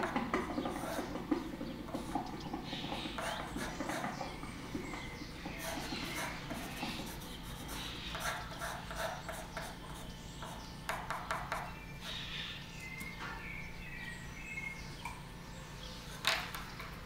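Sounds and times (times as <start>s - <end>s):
pencil scratching on paper: 0.1s - 1.2s, 2.8s - 4.2s, 5.4s - 11.6s.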